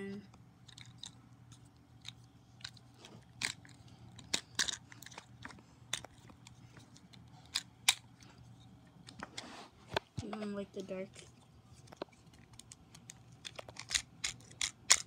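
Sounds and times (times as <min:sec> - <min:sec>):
faint low hum: 0:00.0 - 0:15.0
plastic toy parts clicking: 0:03.4 - 0:06.1, 0:12.4 - 0:15.0.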